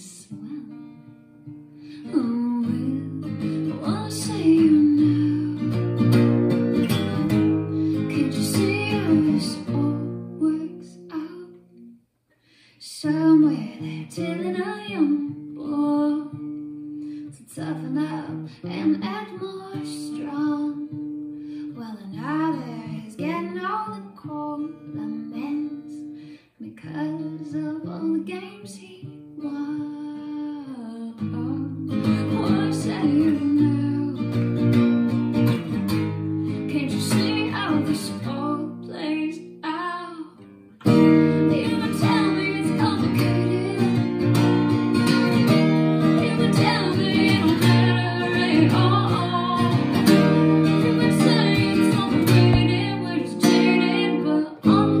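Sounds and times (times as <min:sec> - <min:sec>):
woman singing: 0:00.0 - 0:12.0, 0:12.8 - 0:35.4, 0:36.2 - 0:55.0
acoustic guitar strumming: 0:02.5 - 0:10.8, 0:40.5 - 0:55.0.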